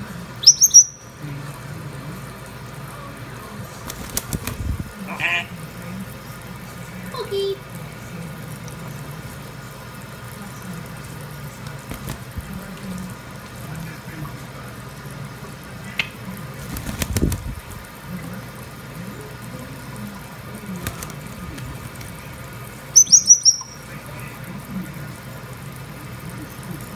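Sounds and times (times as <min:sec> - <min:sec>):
parrot chirping: 0:00.4 - 0:01.2, 0:22.9 - 0:24.0
wing flapping: 0:03.8 - 0:05.0, 0:11.8 - 0:12.6, 0:16.5 - 0:17.8, 0:20.7 - 0:22.2.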